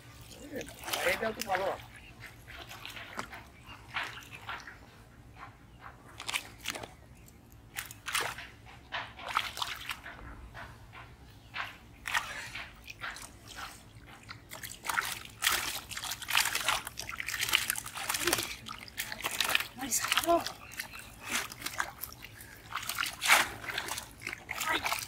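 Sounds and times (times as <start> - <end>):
hands splashing in water: 14.4 - 25.0.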